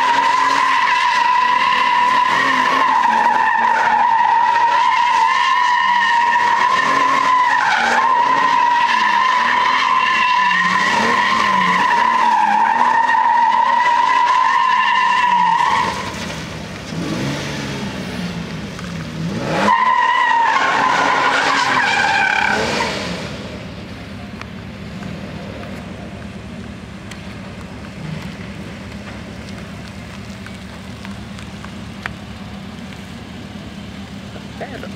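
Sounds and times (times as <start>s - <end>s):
tyres squealing: 0.0s - 16.4s
car engine revving: 0.0s - 23.7s.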